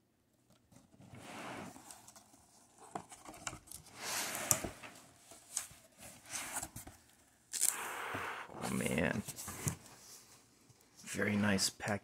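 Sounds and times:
tape and cardboard tearing: 7.5s - 7.8s.

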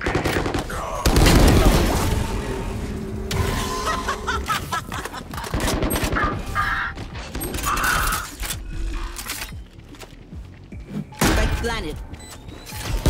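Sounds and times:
rapid gunfire: 0.0s - 2.0s, 5.4s - 6.6s
game effect sounds: 1.1s - 8.4s.

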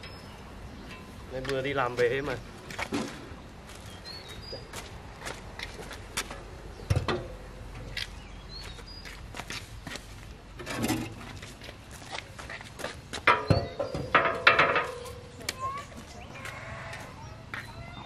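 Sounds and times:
footsteps on concrete: 1.4s - 6.4s, 7.9s - 10.4s, 11.3s - 13.3s, 15.4s - 18.0s.

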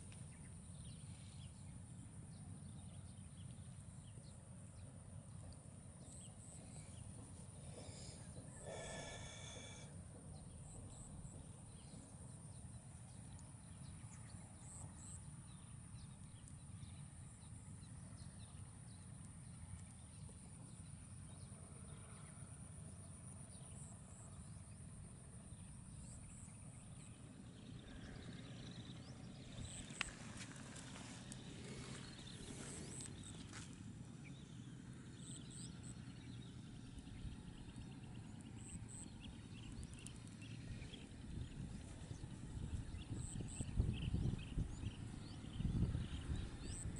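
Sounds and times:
low rumble of wind: 0.0s - 46.9s
bird call: 7.7s - 9.9s.

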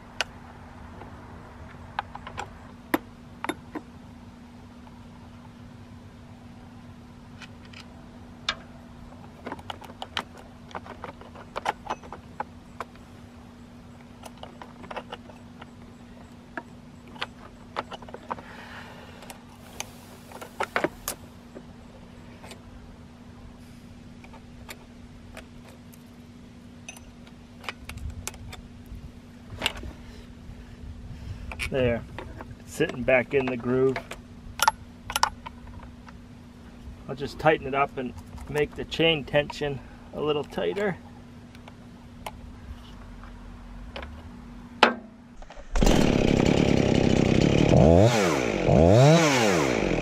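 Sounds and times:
small metallic clicks and clinks: 26.9s - 28.4s.

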